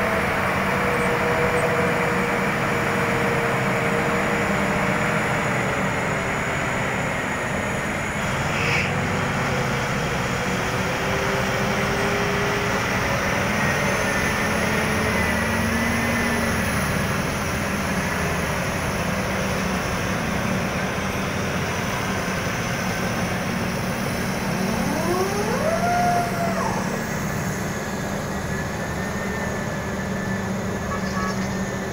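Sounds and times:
haul truck diesel engine: 0.0 - 31.9
heavy machinery drone: 0.0 - 31.9
short rising whine: 23.4 - 31.4.

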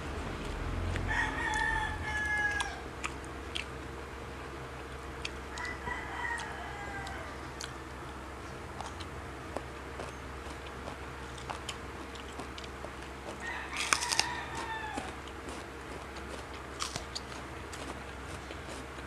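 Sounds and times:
rooster crowing: 0.8 - 3.0, 5.4 - 7.9, 13.2 - 15.6.

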